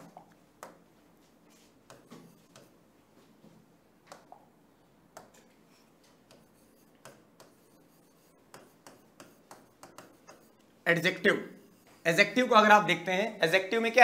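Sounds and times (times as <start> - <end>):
small clicks and taps: 4.1 - 4.4.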